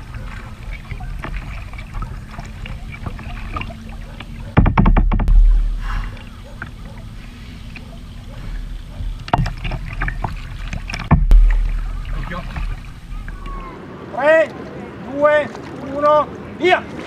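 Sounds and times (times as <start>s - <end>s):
water lapping against kayak: 0.0s - 17.0s
knocks on kayak: 4.5s - 6.1s, 11.0s - 12.8s
loud muffled rumble: 5.1s - 6.4s.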